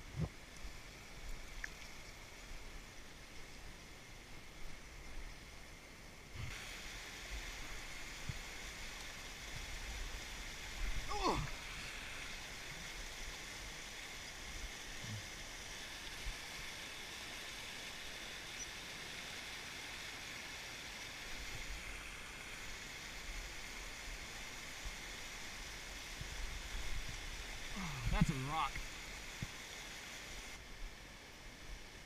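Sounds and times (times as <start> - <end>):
creek rushing over rocks: 6.4 - 31.6.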